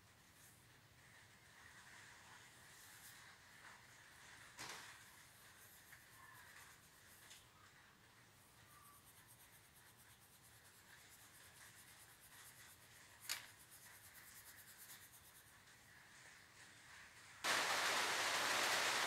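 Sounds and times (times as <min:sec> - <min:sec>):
loud steady hiss: 0:17.1 - 0:19.0.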